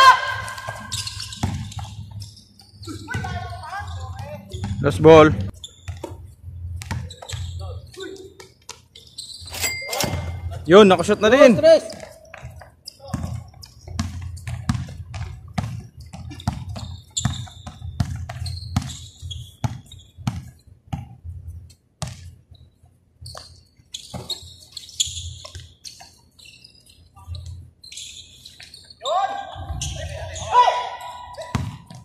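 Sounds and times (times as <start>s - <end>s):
basketball dribble thuds: 0.7s - 2.2s, 2.9s - 5.0s, 5.8s - 7.6s, 11.8s - 21.3s, 22.0s - 22.4s, 31.5s - 32.0s.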